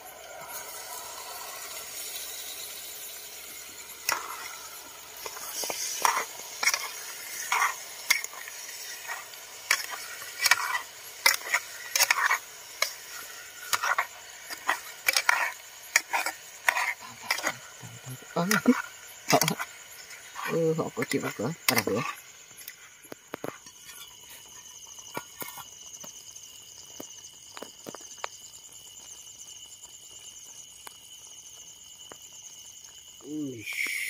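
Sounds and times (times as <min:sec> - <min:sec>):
meat sizzling in a pan: 0:00.0 - 0:34.0
utensil scraping and knocking pan: 0:04.0 - 0:17.8.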